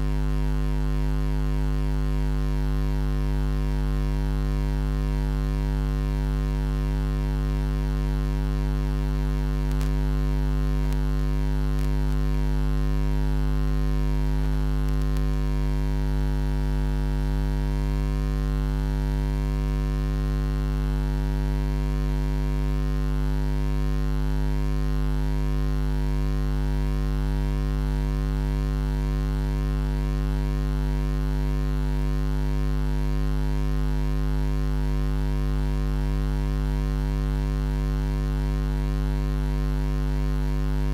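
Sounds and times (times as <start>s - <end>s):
electrical mains hum: 0.0s - 16.1s, 40.0s - 40.9s.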